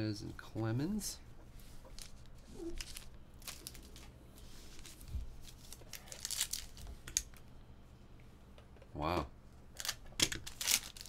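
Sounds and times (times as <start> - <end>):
foil wrapper crinkling and tearing: 2.0 - 4.1, 4.8 - 7.4, 9.8 - 11.0.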